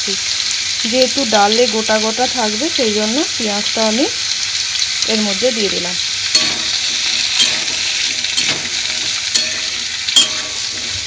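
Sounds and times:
vegetables sizzling in hot oil: 0:00.0 - 0:11.0
metal spatula scraping pan: 0:06.3 - 0:11.0.

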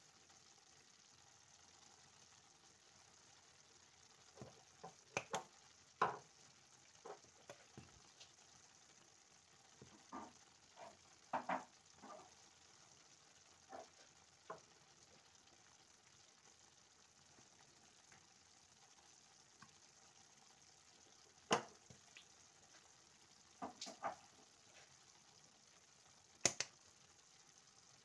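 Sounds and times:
stew simmering hiss: 0:00.0 - 0:28.0
spice containers clicking: 0:26.4 - 0:26.7.

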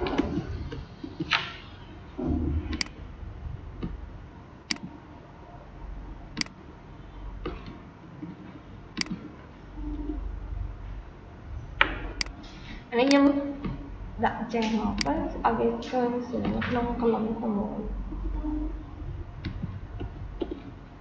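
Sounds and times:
low room hum: 0:00.0 - 0:21.0
mouse and keyboard clicks: 0:13.1 - 0:13.3, 0:15.0 - 0:15.2.

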